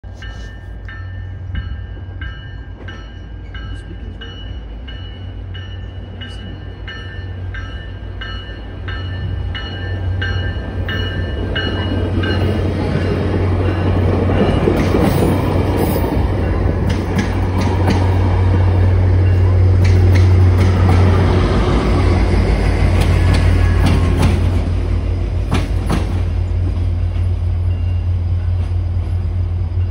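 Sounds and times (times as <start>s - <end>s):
train rumbling: 0.0s - 29.9s
bell ringing: 0.2s - 14.8s.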